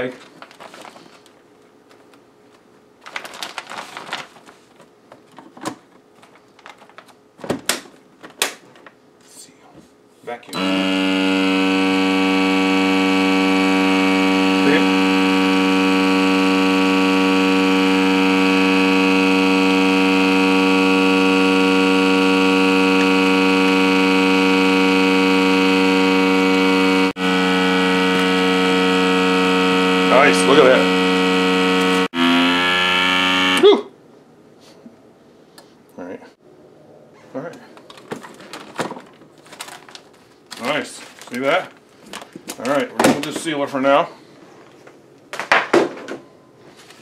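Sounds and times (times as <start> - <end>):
vacuum sealer pump humming: 10.6 - 33.7.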